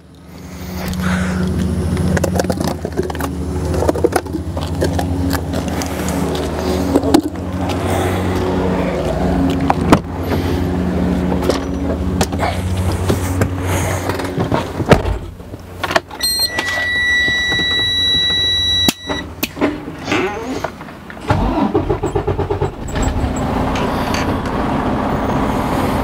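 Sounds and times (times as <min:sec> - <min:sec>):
high-pitched electronic tone: 0:16.2 - 0:19.3
diesel truck engine idling: 0:20.4 - 0:26.0.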